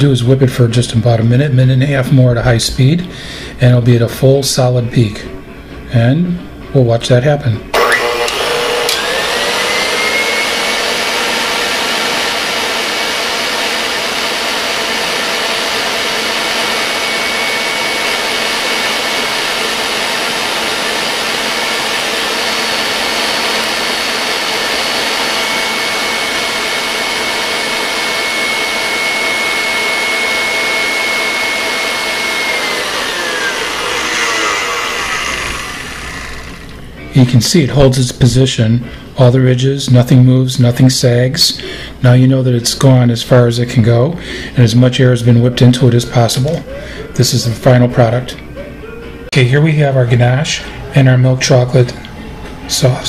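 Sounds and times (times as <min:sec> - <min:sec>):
stand mixer motor whine: 0:07.8 - 0:36.9.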